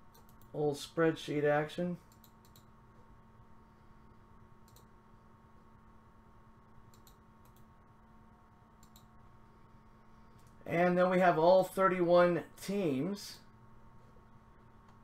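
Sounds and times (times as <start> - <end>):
faint steady hum: 0.0 - 15.0
faint computer mouse clicks: 2.1 - 2.7, 4.6 - 4.9, 6.9 - 7.7, 8.8 - 9.1.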